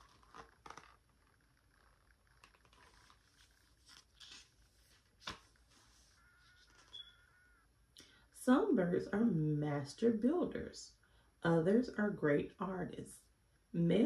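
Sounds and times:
book pages rustling: 0.0 - 7.1.

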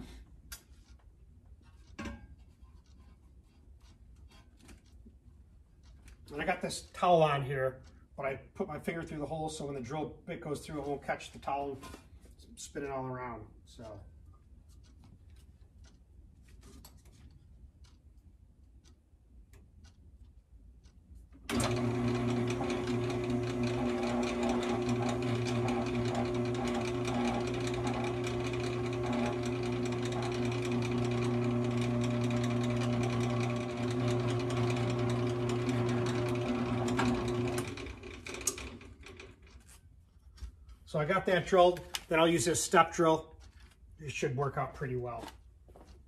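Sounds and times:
drill press motor running: 21.5 - 39.6.

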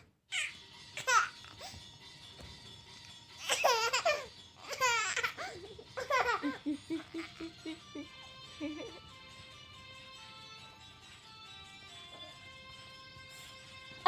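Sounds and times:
baby laughing: 0.3 - 1.7, 3.4 - 9.1.

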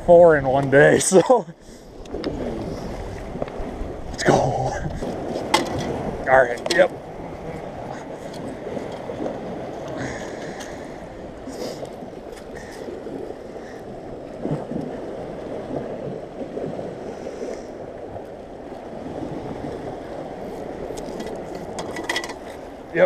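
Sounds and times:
waves lapping at shoreline: 0.0 - 23.0
wind rushing: 1.9 - 18.2.

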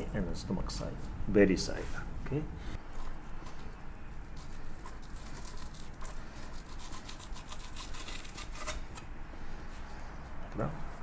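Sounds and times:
knife scraping fish skin: 4.5 - 9.0.

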